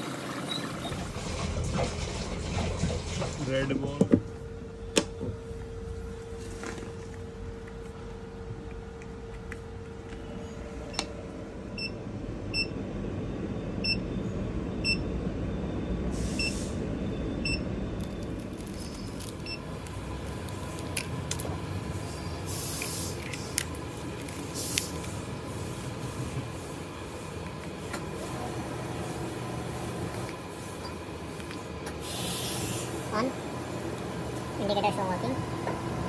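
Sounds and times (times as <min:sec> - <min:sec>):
short hisses: 0:22.1 - 0:23.2, 0:32.0 - 0:33.0.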